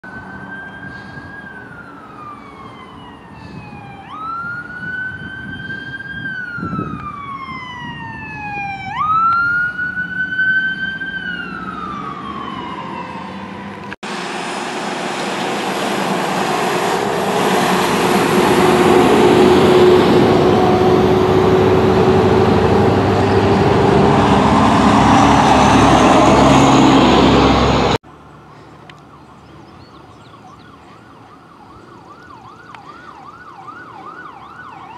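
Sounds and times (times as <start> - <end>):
fire engine siren wailing: 0.0 - 28.0, 30.0 - 34.9
loud rushing roar with hum: 11.4 - 28.0.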